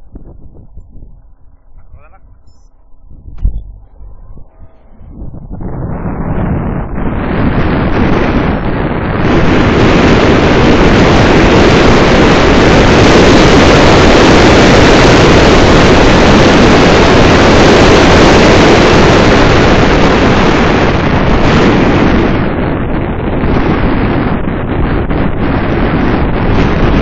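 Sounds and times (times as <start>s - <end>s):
wind buffeting microphone: 0.0s - 27.0s.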